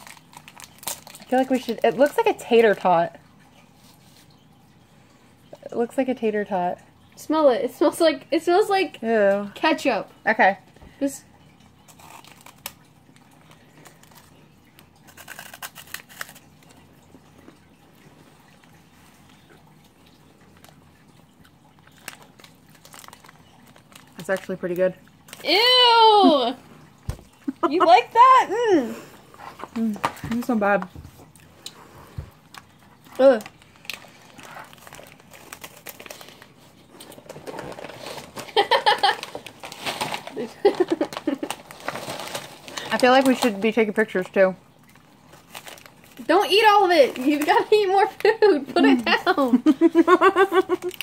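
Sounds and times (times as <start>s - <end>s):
plastic wrapper crinkling: 0.0s - 2.8s, 11.4s - 17.8s, 20.6s - 25.6s, 31.2s - 49.6s, 50.4s - 51.0s.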